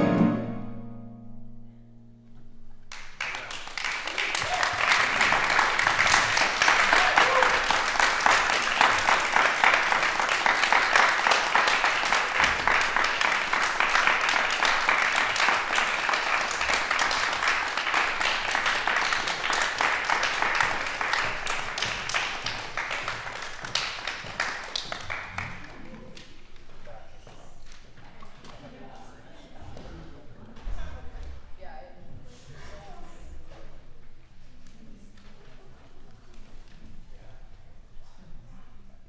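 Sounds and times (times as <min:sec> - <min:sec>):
audience applauding: 0:02.9 - 0:26.7.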